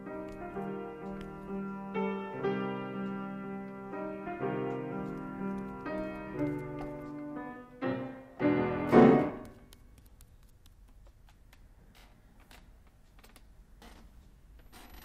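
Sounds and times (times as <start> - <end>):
piano melody: 0.0 - 9.8
crashing piano chord: 0.8 - 9.6
faint clicks and taps: 9.4 - 14.1.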